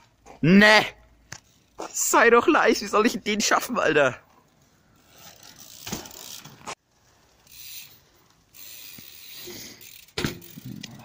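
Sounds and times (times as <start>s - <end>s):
bicycle freewheel ticking: 4.9s - 11.0s.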